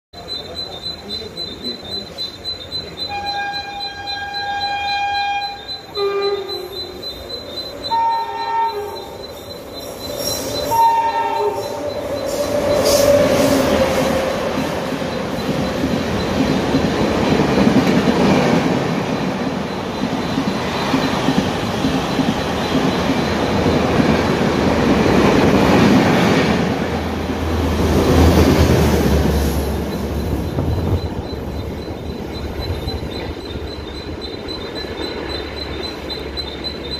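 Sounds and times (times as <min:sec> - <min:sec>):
wheel squeal: 0:00.2 - 0:17.6, 0:29.6 - 0:36.9
train wheels rumbling on rails: 0:00.2 - 0:36.9
train horn blasts: 0:03.1 - 0:07.1, 0:07.8 - 0:09.3, 0:10.6 - 0:11.9
rail clatter: 0:07.2 - 0:36.9.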